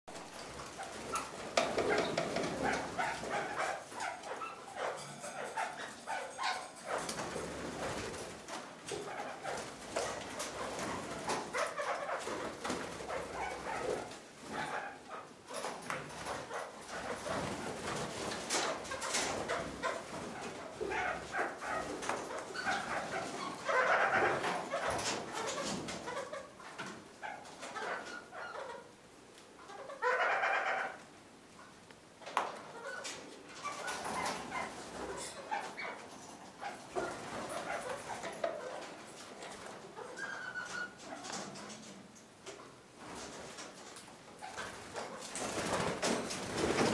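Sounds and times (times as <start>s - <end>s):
birds clicking and rustling: 0.1s - 28.8s, 32.2s - 46.9s
parakeets chattering: 19.0s - 26.6s.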